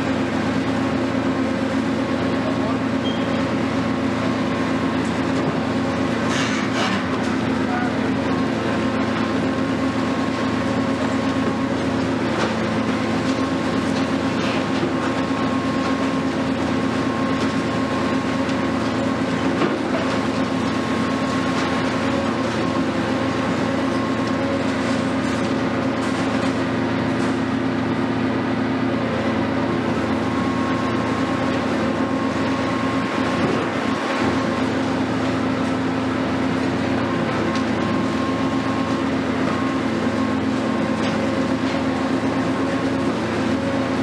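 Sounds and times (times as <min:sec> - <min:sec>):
excavator diesel engine running: 0:00.0 - 0:44.0.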